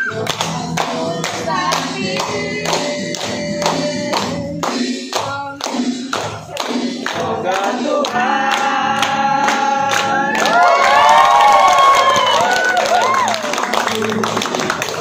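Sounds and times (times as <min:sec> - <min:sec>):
group singing: 0:00.0 - 0:11.1
people clapping in time: 0:00.0 - 0:15.0.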